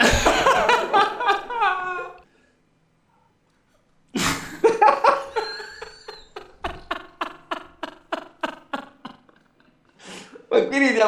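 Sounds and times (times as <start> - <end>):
hearty laughter: 0.0 - 2.2, 4.2 - 10.0.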